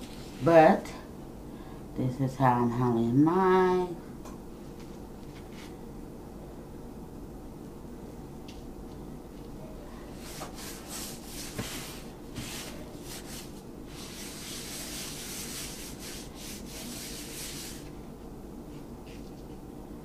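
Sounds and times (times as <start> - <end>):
gloved hands rubbing meat: 10.2 - 17.9.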